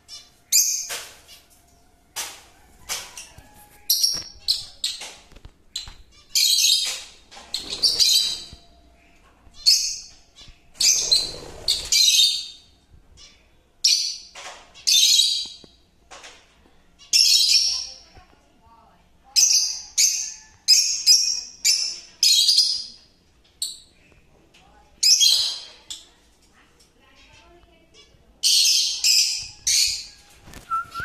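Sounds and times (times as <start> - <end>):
lovebirds chirping: 3.1 - 15.8.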